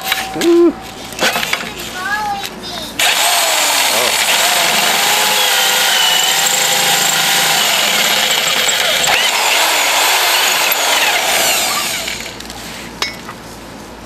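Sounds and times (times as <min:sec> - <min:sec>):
electric drill grinding metal: 0:03.0 - 0:12.4
drill bit squealing: 0:03.1 - 0:12.2.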